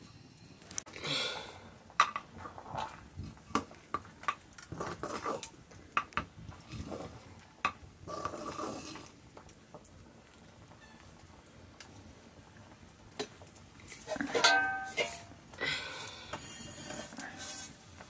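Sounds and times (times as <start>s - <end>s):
stick knocking against metal pot: 14.3s - 15.3s.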